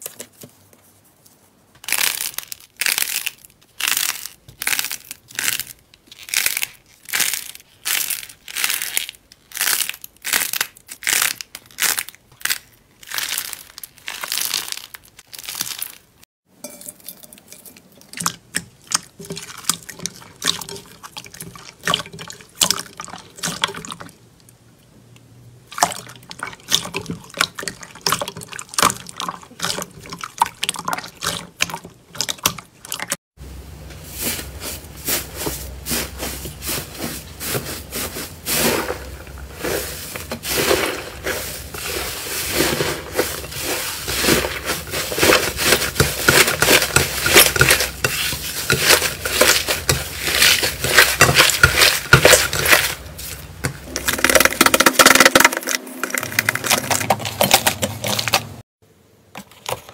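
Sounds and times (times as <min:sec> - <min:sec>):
slime squishing: 0:01.8 - 0:16.2, 0:17.9 - 0:24.5, 0:34.2 - 0:58.6
slime squelching in glass bowl: 0:01.9 - 0:24.2, 0:25.7 - 0:33.2, 0:37.4 - 0:58.6.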